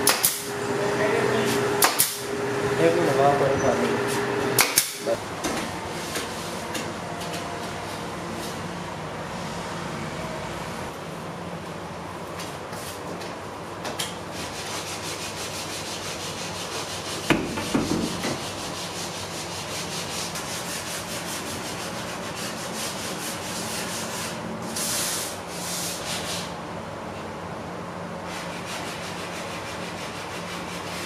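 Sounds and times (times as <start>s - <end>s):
sandpaper scraping wood: 14.3s - 26.5s, 28.3s - 31.0s
sharp knock and thumps: 17.3s - 18.4s.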